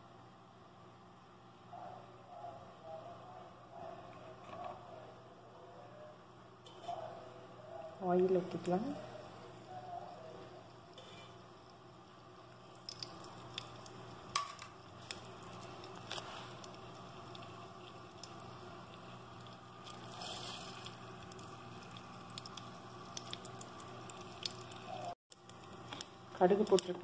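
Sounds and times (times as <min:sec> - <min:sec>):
cooking oil sizzling: 0:11.0 - 0:27.0.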